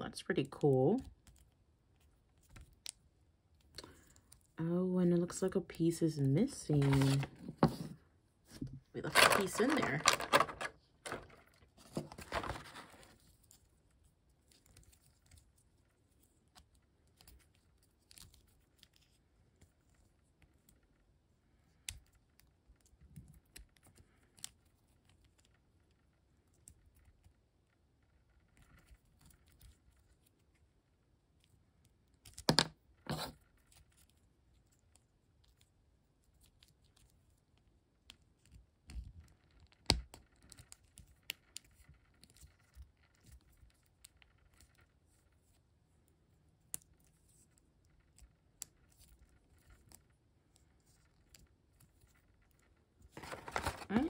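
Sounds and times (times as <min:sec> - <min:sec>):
plastic blister tray rustling: 0:06.7 - 0:08.0, 0:08.6 - 0:13.2, 0:53.1 - 0:54.0
plastic toy parts clicking: 0:09.1 - 0:11.4.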